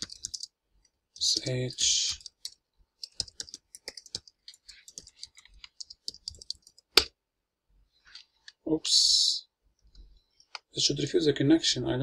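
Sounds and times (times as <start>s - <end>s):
keyboard typing clicks: 0.0s - 0.5s, 2.1s - 7.1s.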